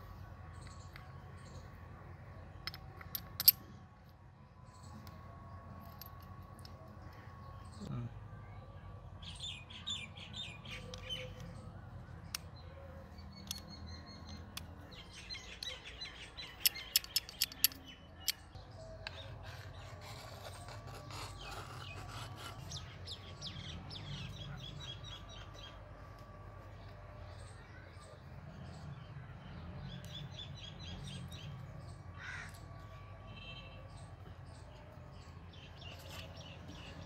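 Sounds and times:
clicks and taps of small parts: 16.6 - 18.5.

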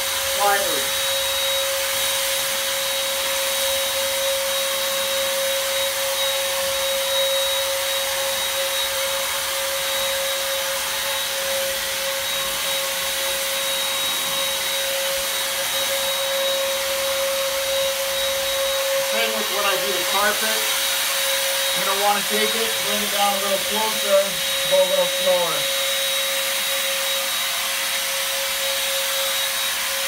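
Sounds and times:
sprayer motor whining: 0.0 - 30.0
spray hissing: 11.1 - 26.6.

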